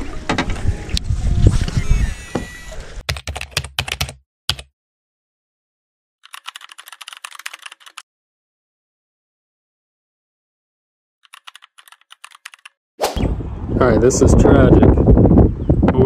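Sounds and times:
keyboard typing clicks: 3.1 - 4.7, 6.3 - 8.0, 11.3 - 12.7
sharp clicks: 3.1 - 4.7
wind and handling rumble: 13.2 - 16.0.

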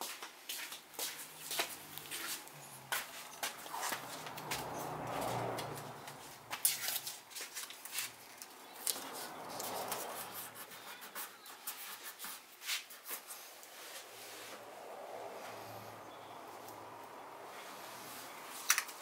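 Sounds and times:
soft rubbing: 0.5 - 8.5
light clicks of handled parts: 18.6 - 19.0.

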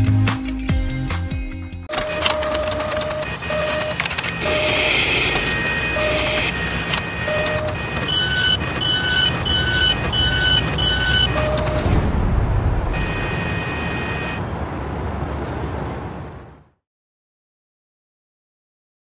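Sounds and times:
short high beeps: 1.9 - 11.9
short low beeps: 1.9 - 11.9
mechanical whirring and clatter: 1.9 - 12.0.

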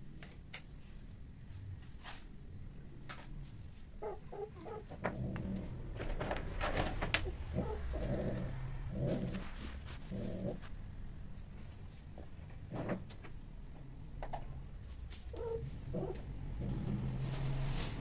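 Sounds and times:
cats yowling and growling: 7.2 - 10.6, 15.3 - 17.1.

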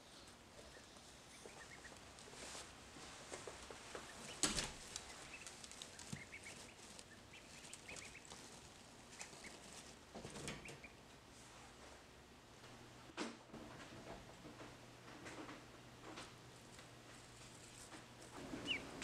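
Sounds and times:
rustle of wood shavings: 0.0 - 10.2
ducklings peeping: 0.1 - 2.5, 3.2 - 11.1, 18.3 - 19.0.

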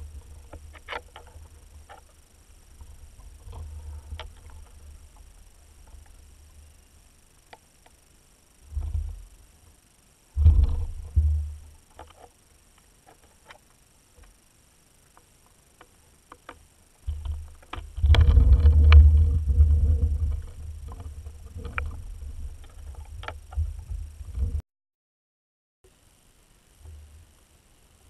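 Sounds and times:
underwater rumbling water: 10.4 - 11.6, 17.1 - 24.6
underwater clicks and knocks: 10.4 - 12.2, 15.8 - 24.6.

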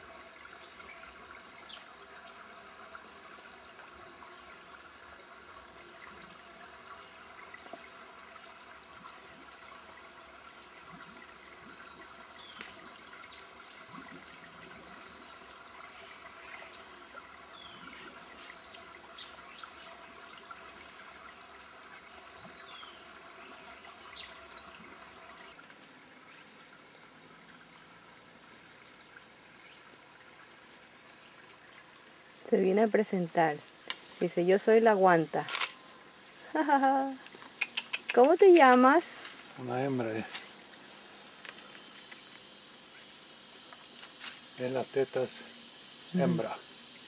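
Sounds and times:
faint insect hum: 0.0 - 47.0
high insect trill: 0.0 - 47.0.

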